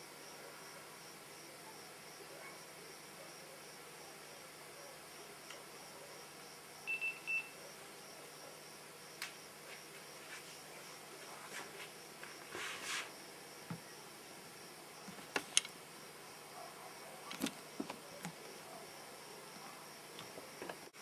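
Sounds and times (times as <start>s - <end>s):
faint steady hiss: 0.0s - 21.0s
faint clicks: 15.3s - 15.7s.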